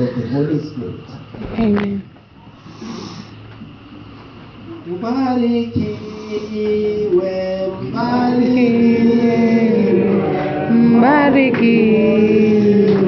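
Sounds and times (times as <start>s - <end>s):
people singing a hymn: 7.0s - 13.0s.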